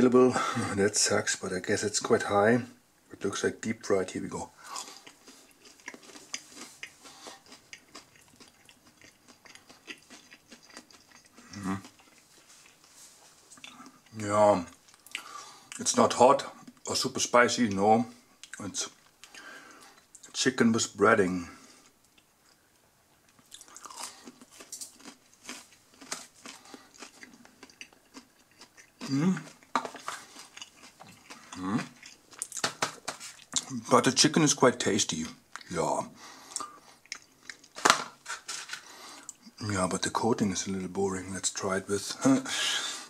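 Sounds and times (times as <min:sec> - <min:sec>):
person chewing crunchy food: 0:04.6 - 0:15.8, 0:21.8 - 0:33.8, 0:36.5 - 0:39.6.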